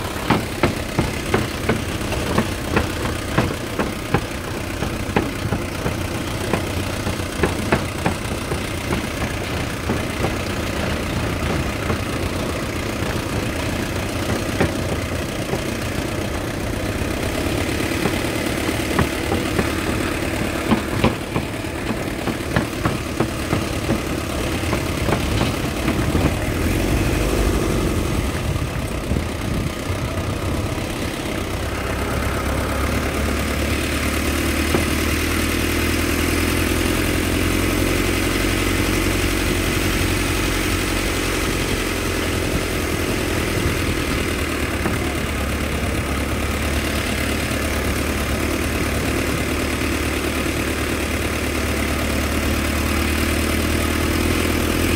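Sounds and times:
pickup truck engine running: 0:00.0 - 0:54.9
truck knocks and rattles: 0:00.0 - 0:54.9.

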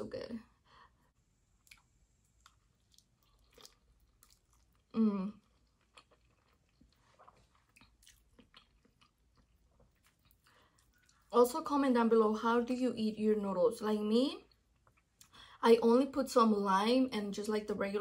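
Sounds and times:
person chewing noodles: 0:01.6 - 0:11.3.

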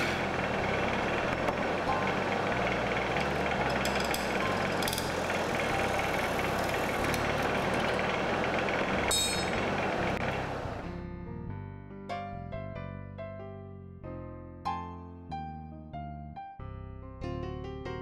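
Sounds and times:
wood lathe hum: 0:00.0 - 0:10.8.

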